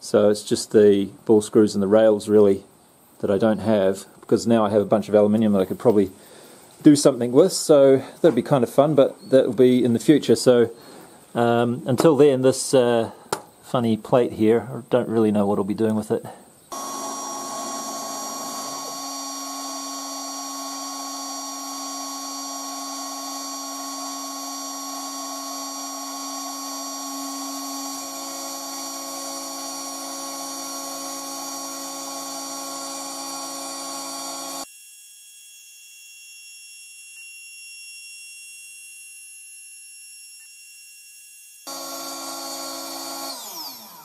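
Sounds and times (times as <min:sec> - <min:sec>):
router spindle whine: 0:16.7 - 0:44.0.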